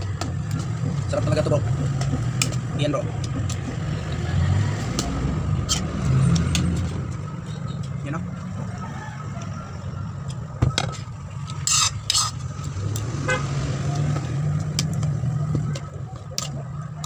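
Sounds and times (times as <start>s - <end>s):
utensil scraping metal pot: 11.5s - 12.5s.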